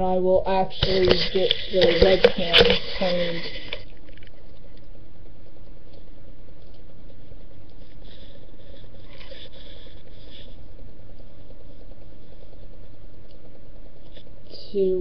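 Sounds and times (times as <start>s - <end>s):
scratchy rubs on microphone: 0.7s - 3.9s, 7.1s - 12.9s.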